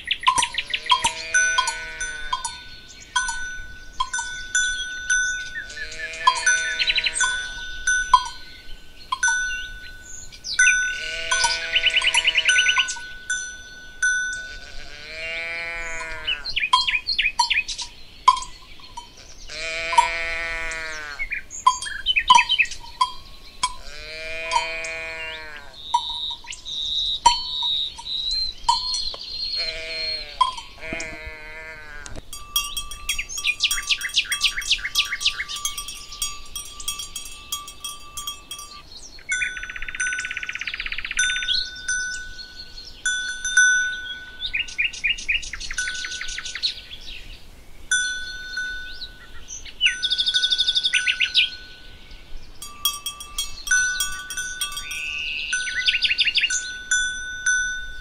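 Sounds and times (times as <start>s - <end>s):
birds singing: 0.0s - 58.0s
bells clanking: 0.3s - 20.8s, 21.5s - 25.2s, 25.8s - 44.7s, 45.6s - 46.8s, 47.9s - 58.0s
animals bleating: 0.4s - 2.5s, 5.6s - 7.6s, 10.8s - 13.0s, 14.4s - 16.6s, 19.2s - 21.4s, 23.7s - 25.9s, 29.6s - 32.2s.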